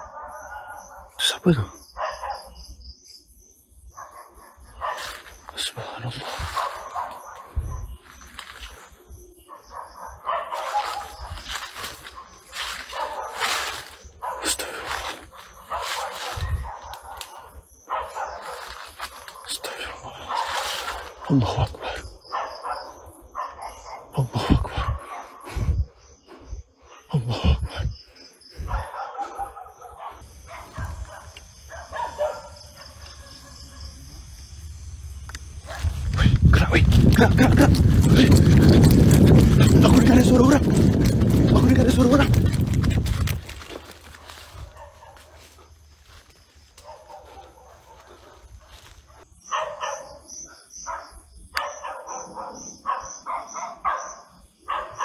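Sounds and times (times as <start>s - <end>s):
dog barking: 0.0s - 2.6s, 3.9s - 8.0s, 9.4s - 25.6s, 28.6s - 34.2s, 35.6s - 36.3s, 44.4s - 45.8s, 46.8s - 55.0s
night insects trilling: 0.0s - 55.0s.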